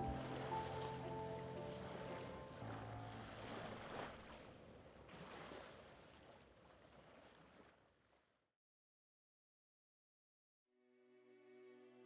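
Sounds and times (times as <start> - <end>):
background music note: 0.0 - 3.4
lake water lapping: 0.0 - 8.3.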